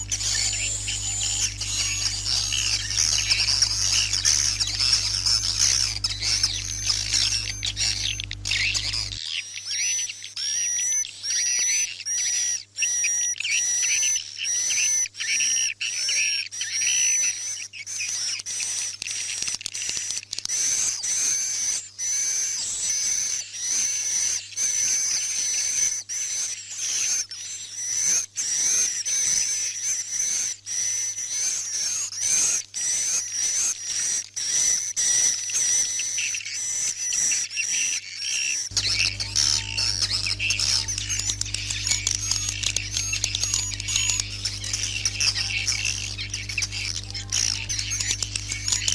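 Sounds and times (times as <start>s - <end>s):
swiftlets twittering: 0.0s - 11.8s, 37.3s - 48.9s.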